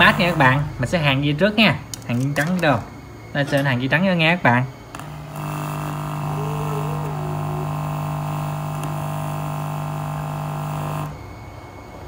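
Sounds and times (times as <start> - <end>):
mains hum from speakers: 0.0 - 12.0.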